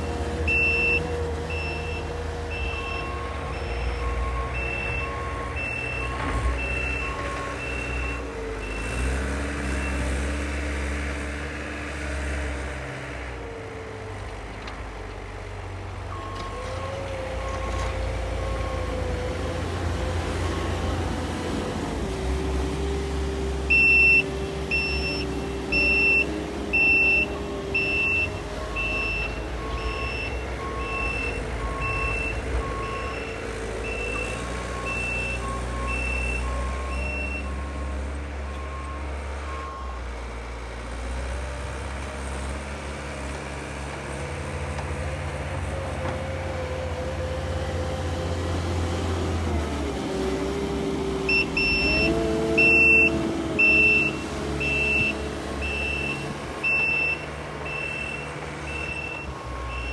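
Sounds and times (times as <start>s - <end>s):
diesel engine under load: 0.0s - 59.9s
reversing alarm beeping: 0.5s - 9.0s, 23.7s - 40.0s, 51.3s - 59.9s.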